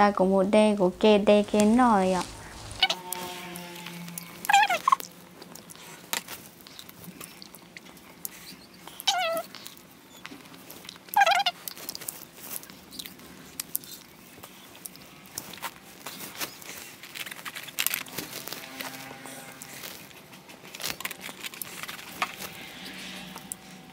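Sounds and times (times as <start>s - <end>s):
animal calls sliding down in pitch: 1.2s - 5.6s.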